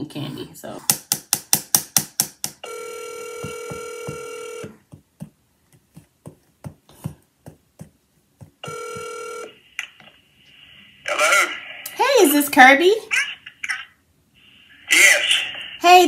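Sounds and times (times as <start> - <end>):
phone ringback tone: 2.6 - 4.8, 8.6 - 9.6
faint ticks and taps: 3.4 - 9.2.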